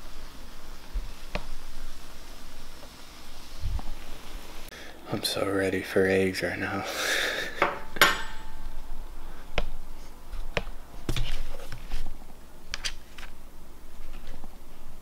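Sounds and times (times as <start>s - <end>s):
plate and fork clinking on table: 7.6s - 8.7s.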